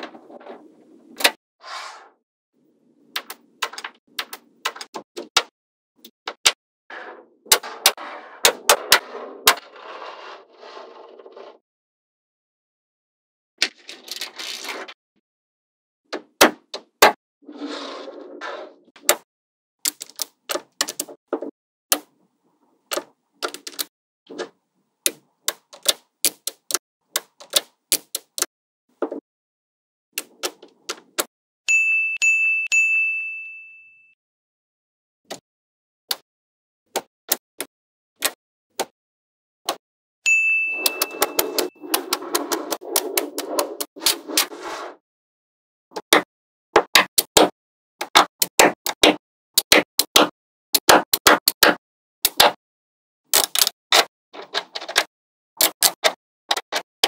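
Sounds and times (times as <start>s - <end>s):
bright ding: 31.7s - 34.2s, 40.3s - 41.8s.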